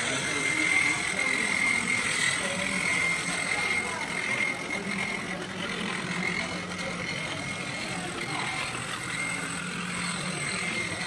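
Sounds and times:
faint distant voices: 0.0 - 11.0
model locomotive running on track: 0.0 - 11.0.

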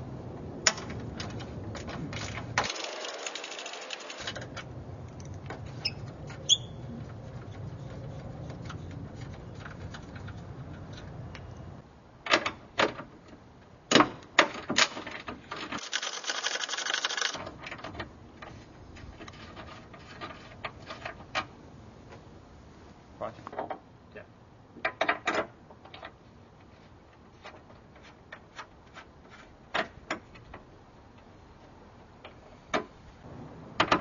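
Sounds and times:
rustling scrape: 5.6 - 10.5, 18.4 - 21.2, 26.6 - 29.6.

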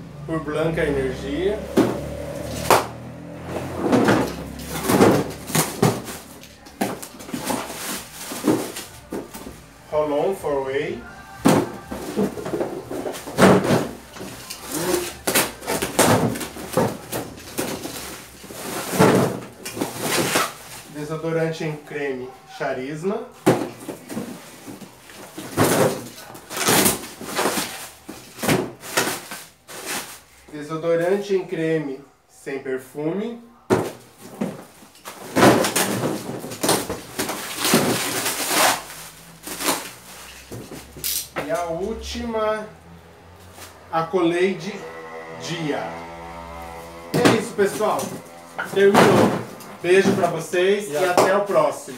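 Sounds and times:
cardboard flaps rustling: 1.6 - 9.7, 11.3 - 21.0, 23.4 - 30.4, 33.7 - 41.1, 46.2 - 51.7
plastic packing bag crinkling: 4.2 - 9.8, 23.8 - 30.5, 34.0 - 41.2
packing tape ripping: 13.4 - 20.9, 25.8 - 30.3, 35.0 - 40.4.

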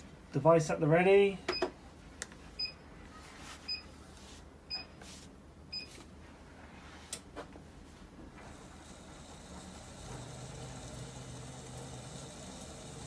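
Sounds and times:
short electronic beeps: 2.6 - 2.8.

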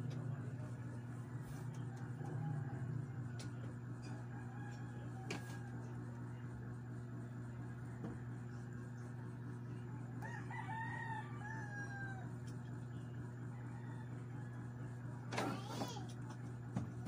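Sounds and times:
steady low hum: 0.0 - 17.0
rooster crowing: 4.0 - 6.0, 10.2 - 12.4, 13.5 - 14.7.

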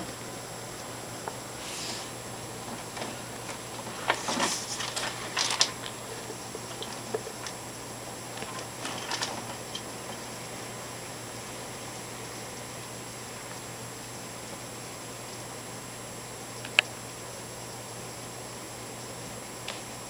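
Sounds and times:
heavy rain heard from indoors: 0.0 - 14.9.

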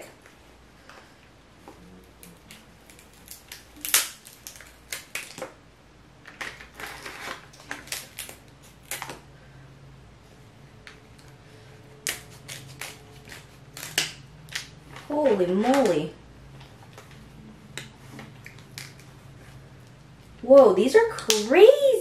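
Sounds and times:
scissors cutting crab shell: 12.0 - 14.7.

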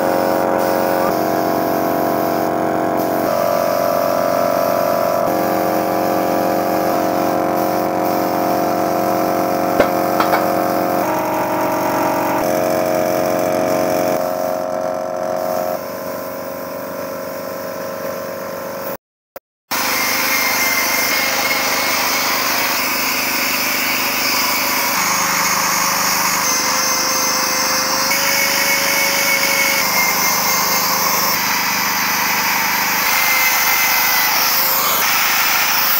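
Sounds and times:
air compressor running: 0.0 - 19.0, 19.7 - 35.9
spray gun air hiss: 0.1 - 9.2.

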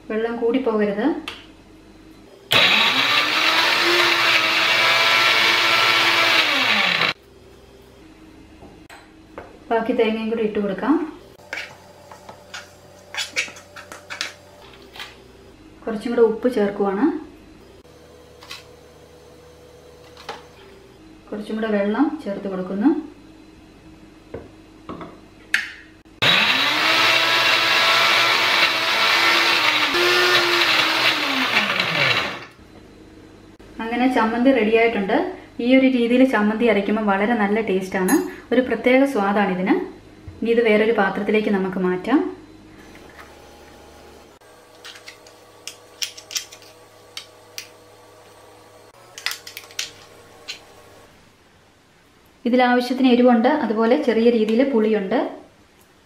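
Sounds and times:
mixer grinder motor whine: 2.5 - 7.2, 26.2 - 32.6.

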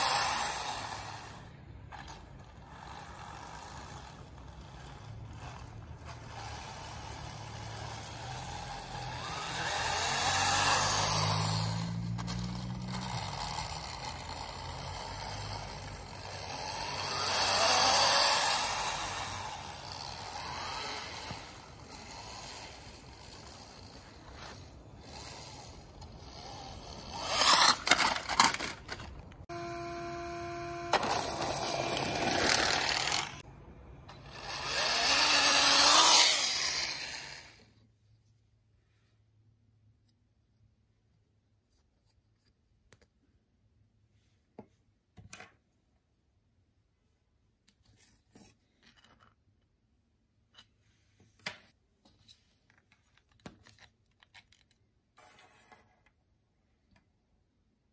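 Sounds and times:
toy snowmobile motor whine: 0.0 - 33.5, 34.1 - 37.7.

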